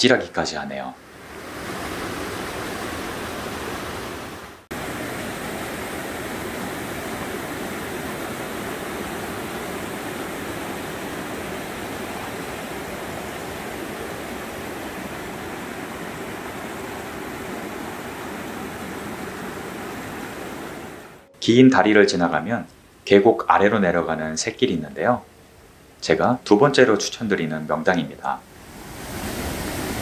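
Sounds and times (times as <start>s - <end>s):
stream rushing over rocks: 1.2s - 21.3s, 28.5s - 30.0s.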